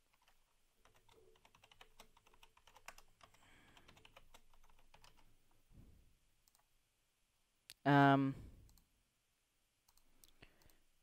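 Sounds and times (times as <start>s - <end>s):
typing on computer keyboard: 0.0s - 5.3s.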